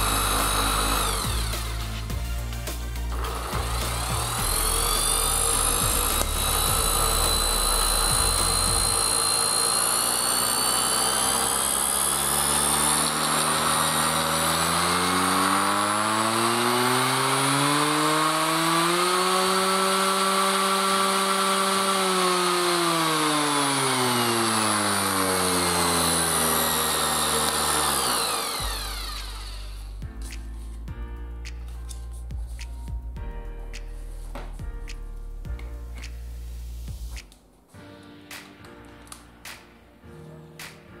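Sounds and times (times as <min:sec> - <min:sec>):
orbital sander running: 0:00.0 - 0:30.0.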